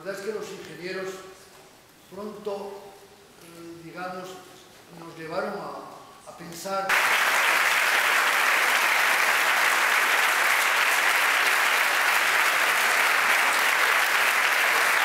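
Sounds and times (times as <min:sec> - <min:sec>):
large audience applauding: 0:06.9 - 0:15.0.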